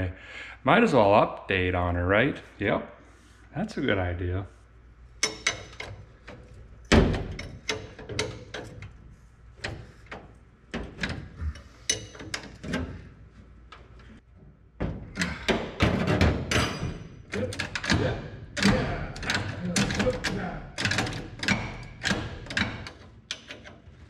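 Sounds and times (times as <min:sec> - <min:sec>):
wrenches clicking and clanking: 0:05.2 - 0:14.2, 0:14.8 - 0:24.0.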